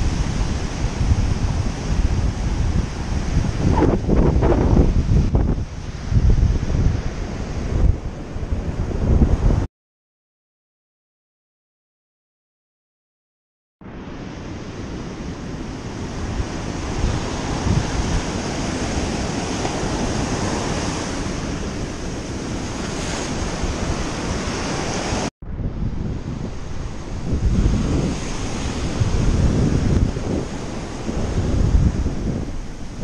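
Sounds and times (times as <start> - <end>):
wind buffeting microphone: 0.0 - 9.7, 14.3 - 33.0
surf breaking on beach: 14.1 - 33.0.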